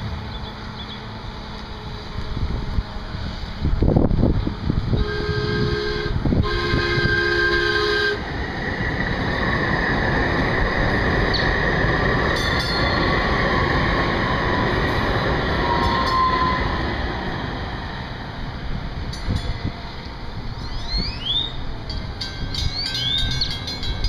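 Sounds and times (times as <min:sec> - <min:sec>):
train wheels rushing on rails: 0:00.0 - 0:24.0
train horn chord: 0:04.9 - 0:08.2.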